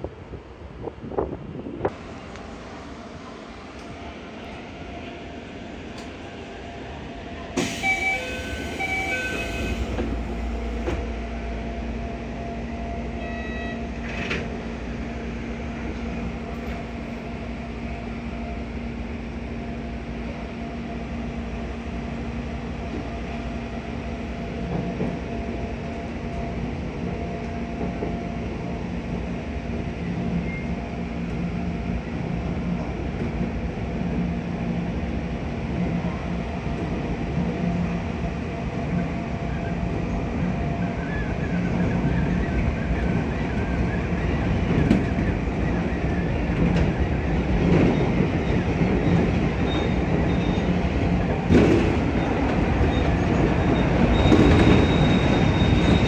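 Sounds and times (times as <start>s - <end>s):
click: 3.8s - 4.0s, 5.9s - 6.2s.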